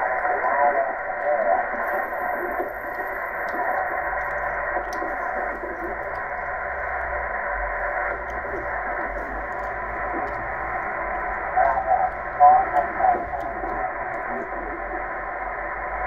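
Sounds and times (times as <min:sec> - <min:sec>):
weak voice over radio: 0:00.0 - 0:02.7, 0:08.0 - 0:15.4
radio hiss: 0:00.0 - 0:16.0.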